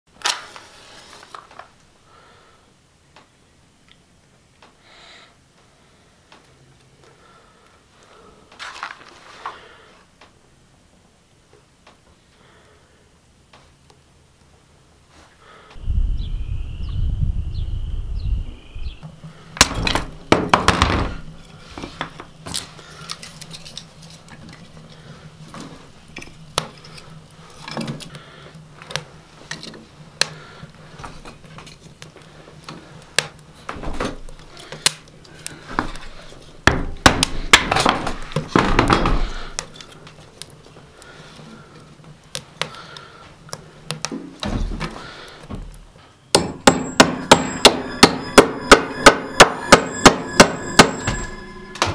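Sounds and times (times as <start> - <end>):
rustling: 0.3 - 1.9, 8.6 - 10.1.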